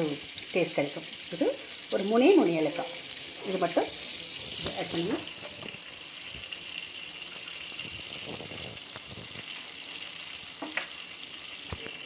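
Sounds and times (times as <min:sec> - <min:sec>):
butter and oil sizzling in pan: 0:00.0 - 0:12.0.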